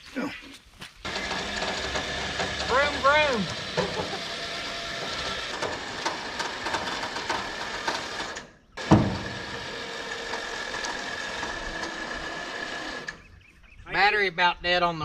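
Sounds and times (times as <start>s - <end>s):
electric winch whining: 1.0s - 13.4s.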